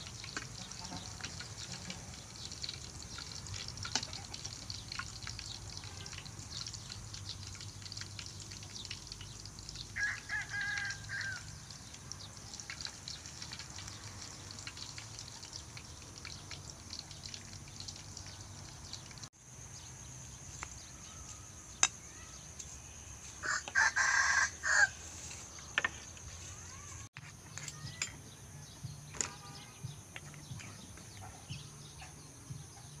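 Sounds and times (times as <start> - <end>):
rooster crowing: 10.0 - 11.6, 23.4 - 25.2.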